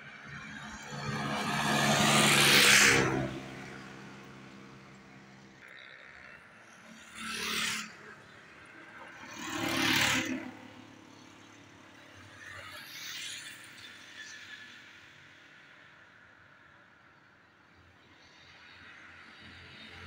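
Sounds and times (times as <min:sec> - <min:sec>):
vehicles passing by: 0:00.0 - 0:15.8.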